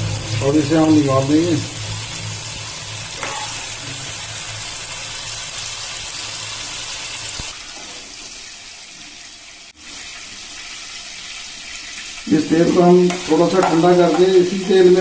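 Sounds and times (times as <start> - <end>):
low hum: 0.0 - 5.2
oil sizzling in a pan: 0.0 - 15.0.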